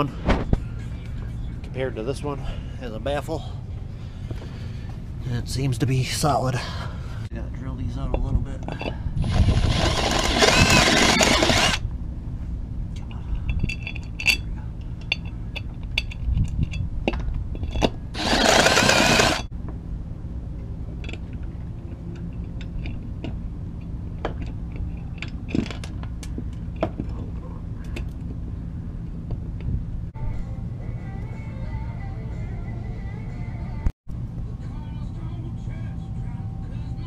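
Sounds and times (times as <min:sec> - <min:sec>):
cordless drill drilling metal: 0:09.2 - 0:11.8, 0:18.2 - 0:19.5.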